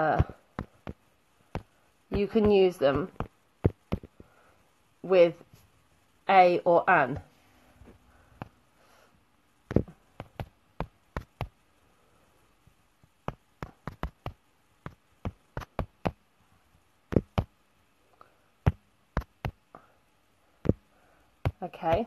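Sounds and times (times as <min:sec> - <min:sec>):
sharp taps and clicks: 0:00.1 - 0:04.3, 0:09.7 - 0:11.6, 0:13.2 - 0:16.2, 0:17.1 - 0:17.5, 0:18.7 - 0:19.7.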